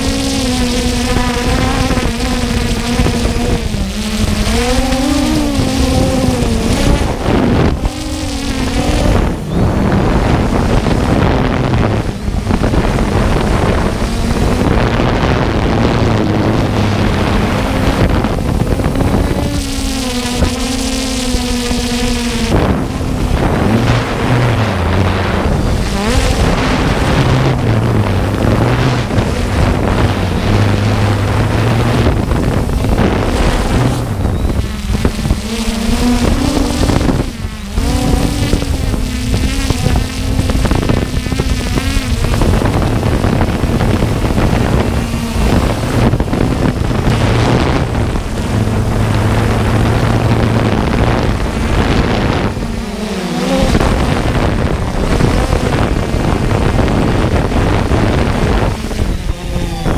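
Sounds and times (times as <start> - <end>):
drone propellers humming: 0.0 - 59.9
wind noise on microphone: 0.0 - 59.9.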